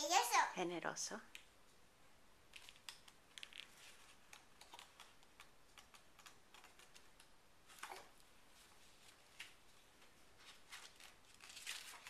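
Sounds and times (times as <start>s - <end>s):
book pages turning: 2.5s - 12.0s.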